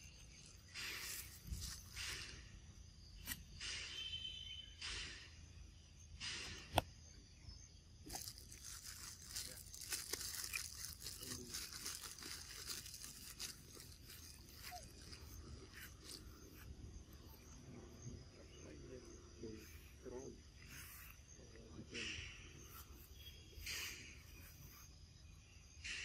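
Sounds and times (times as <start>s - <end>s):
monkey biting and tearing fruit: 8.1s - 16.5s.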